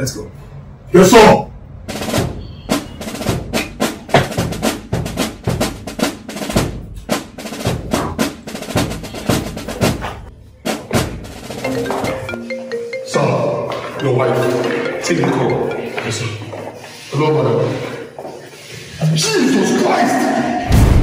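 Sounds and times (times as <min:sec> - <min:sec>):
snare and bass drum hits: 0:01.9 - 0:11.9.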